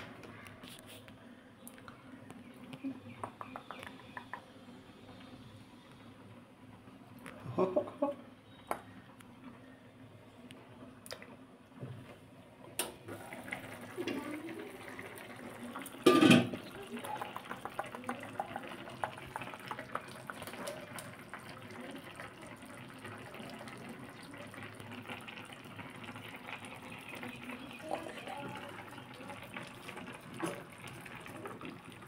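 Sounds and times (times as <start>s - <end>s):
curry bubbling and popping: 12.8s - 32.0s
glass lid clattering: 16.0s - 16.6s.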